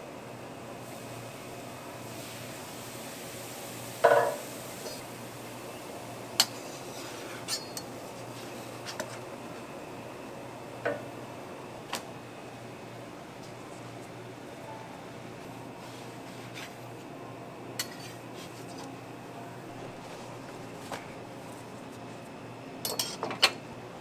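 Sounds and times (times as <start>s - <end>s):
utensils knocking on griddle: 4.0s - 4.4s.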